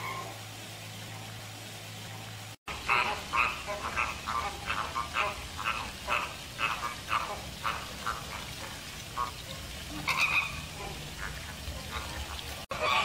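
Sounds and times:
flamingos calling: 2.7 - 13.0.

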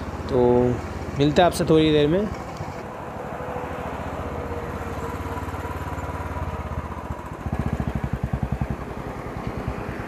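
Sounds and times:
motorcycle engine running: 5.2 - 10.0.

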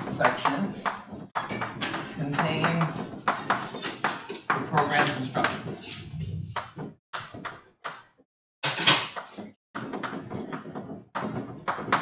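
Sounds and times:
writing strokes on a board: 4.8 - 7.4.

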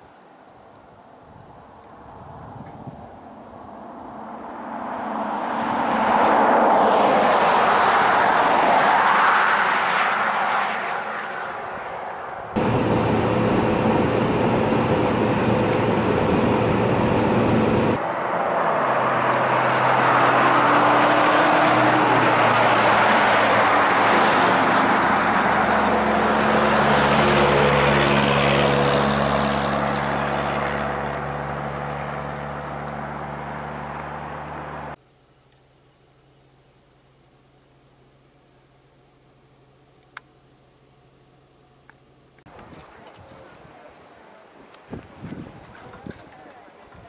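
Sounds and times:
tyre and road noise: 1.8 - 35.0, 42.0 - 47.0
car engine hum: 4.5 - 35.0.

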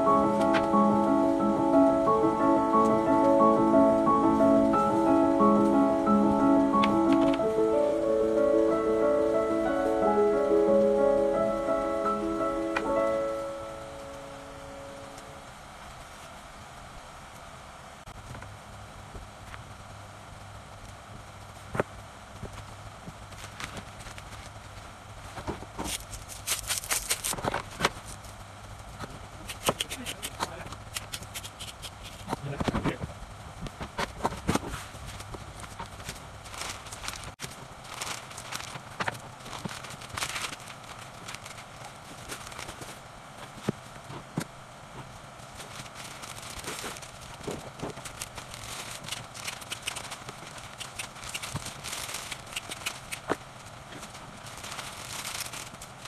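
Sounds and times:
flower wrapping crackling: 0.0 - 16.4, 20.7 - 33.0, 33.9 - 56.0
steady low hum: 0.0 - 56.0.

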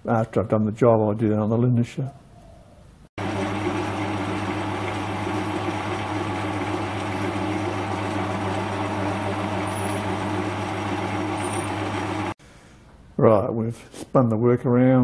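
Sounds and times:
lathe motor hum: 3.2 - 12.4.

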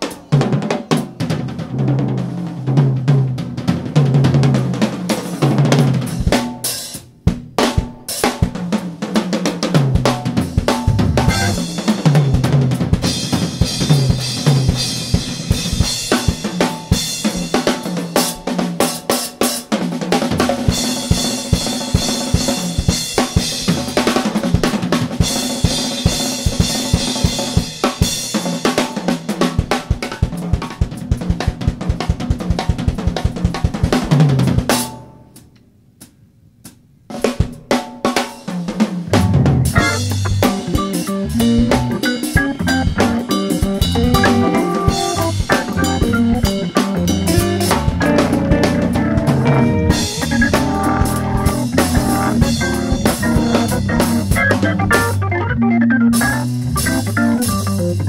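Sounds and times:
drum kit playing: 0.0 - 58.0
soul jazz organ combo: 9.1 - 19.6, 20.4 - 29.1, 39.1 - 58.0.

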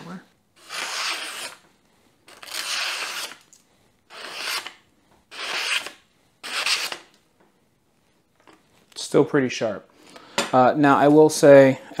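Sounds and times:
knife slicing paper: 0.6 - 1.6, 2.3 - 3.4, 4.1 - 7.1.

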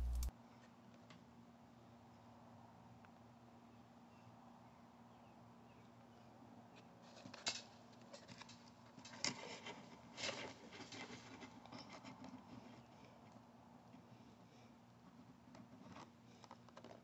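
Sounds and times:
loud plastic clicks: 0.0 - 0.3
plastic packaging crinkling: 0.0 - 0.3.

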